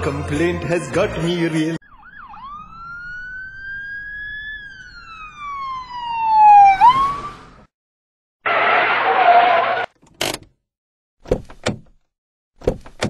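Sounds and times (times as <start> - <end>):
sliding whistle: 8.5 - 9.9.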